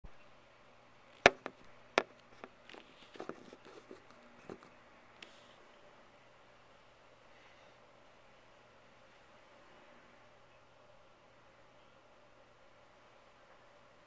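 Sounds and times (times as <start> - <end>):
device handling knocks and clicks: 1.2 - 2.5.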